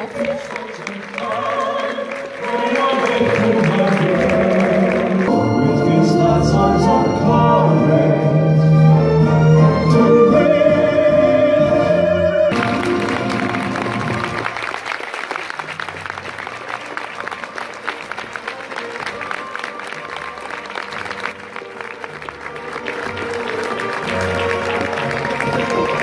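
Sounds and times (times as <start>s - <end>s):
audience applause: 0.0s - 5.3s, 12.5s - 26.0s
operatic singing: 0.0s - 14.5s.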